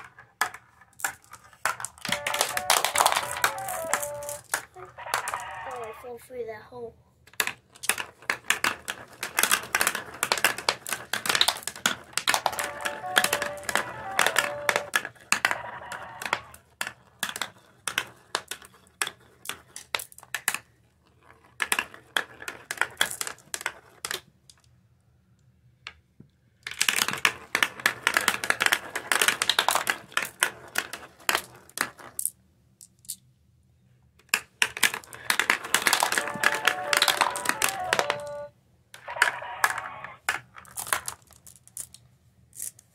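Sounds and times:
marbles rattling down plastic run: 0:00.4 - 0:05.9, 0:07.4 - 0:20.4, 0:26.7 - 0:32.4, 0:34.6 - 0:38.4.

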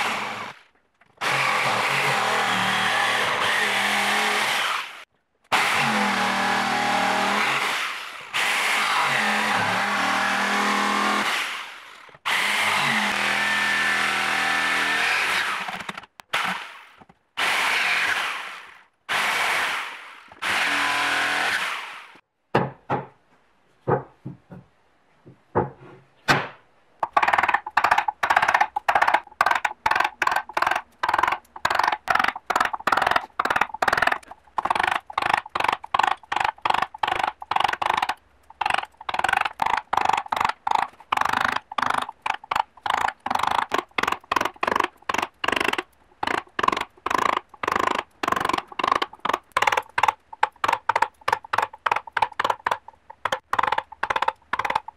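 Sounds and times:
rotary carving tool running: 0:01.2 - 0:16.7, 0:17.4 - 0:22.2, 0:27.3 - 0:54.9
mallet tapping carving gouge: 0:27.0 - 0:54.9.

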